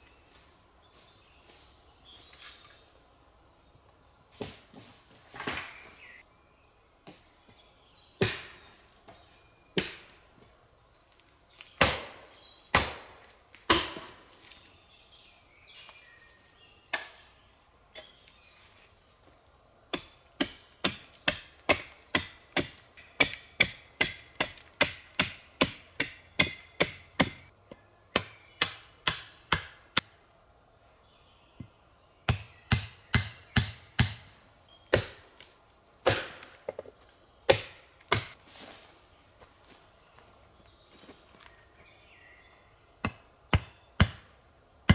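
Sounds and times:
wood chopping blows: 11.7s - 14.2s, 36.0s - 36.8s, 37.5s - 38.4s.

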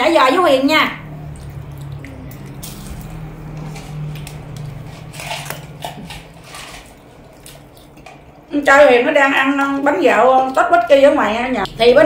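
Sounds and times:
crisp food chewing: 1.3s - 8.2s.

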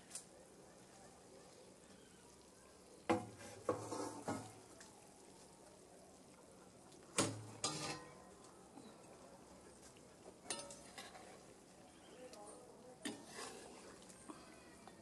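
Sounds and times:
food sizzling in a pot: 3.0s - 4.7s, 7.2s - 8.3s
metal cookware clanks: 7.2s - 8.2s, 10.5s - 11.3s.

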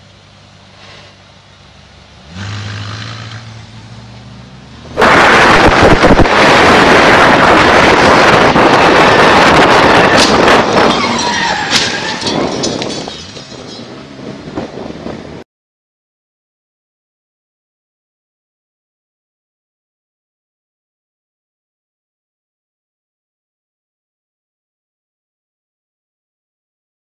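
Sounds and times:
faint low engine drone: 0.0s - 6.2s
car roaring past fast: 2.2s - 13.0s.

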